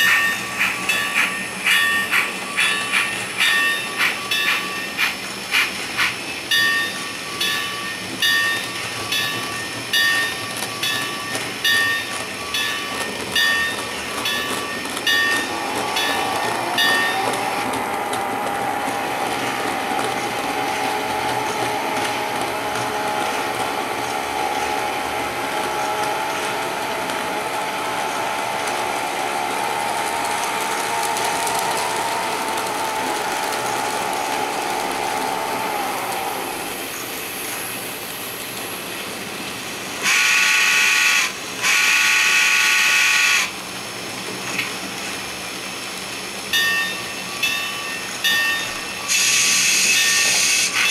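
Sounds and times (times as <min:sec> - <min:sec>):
locomotive bell ringing: 0:00.0 - 0:05.5, 0:06.1 - 0:30.2, 0:46.5 - 0:50.9
wheels clicking over track: 0:00.0 - 0:40.2
model train motor whine: 0:10.0 - 0:38.0, 0:40.0 - 0:43.6, 0:48.3 - 0:50.9.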